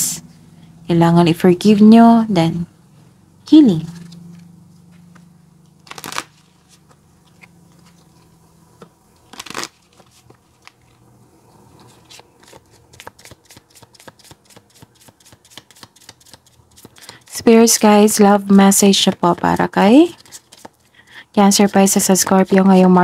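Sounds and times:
cards sliding swish: 11.7s - 17.3s.

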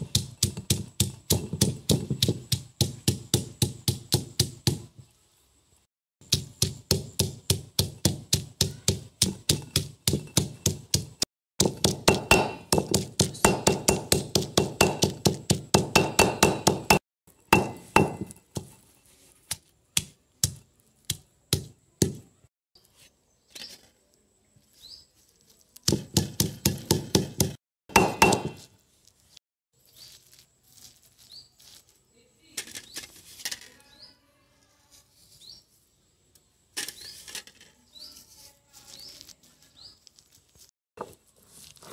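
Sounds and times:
stone pestle pounding on stone: 0.0s - 4.9s, 6.2s - 18.8s, 20.0s - 22.3s, 25.9s - 28.6s
scraping and crushing paste: 38.2s - 41.9s.

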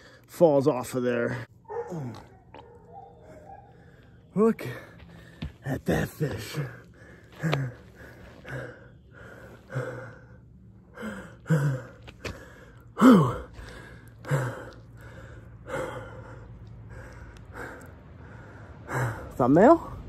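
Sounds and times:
man breathing hard and gasping: 3.2s - 5.6s, 6.4s - 19.4s
man groaning: 13.0s - 13.6s.

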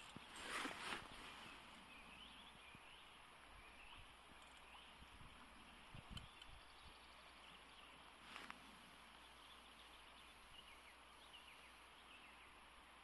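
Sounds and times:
faint bird chirps: 0.0s - 13.0s.

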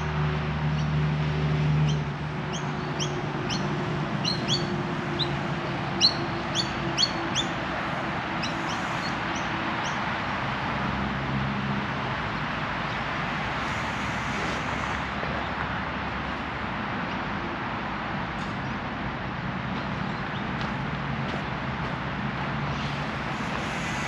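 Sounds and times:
background traffic hiss: 0.0s - 24.0s
bird chirping: 1.8s - 5.4s, 6.0s - 7.6s.

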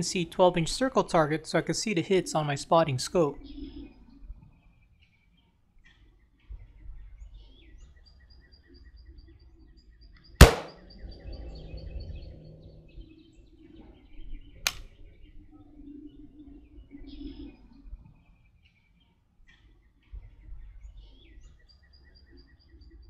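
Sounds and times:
faint bird chirps: 3.3s - 23.0s
sharp crack: 10.4s - 10.8s
rifle shot with rumbling echo: 10.4s - 10.9s.

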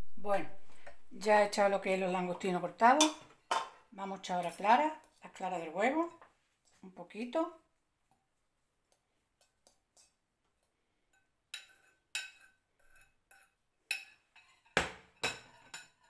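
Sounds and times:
metal spoon clinking on bowl: 11.1s - 16.0s.

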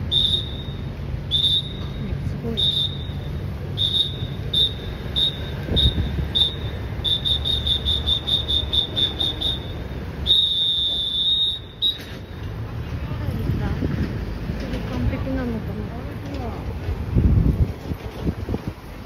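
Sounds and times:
whistle blasts: 0.0s - 12.4s
van engine running: 0.0s - 19.0s.

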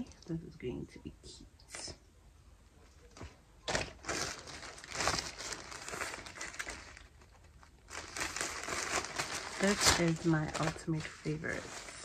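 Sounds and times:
packaging crinkling and rustling: 3.0s - 12.0s.

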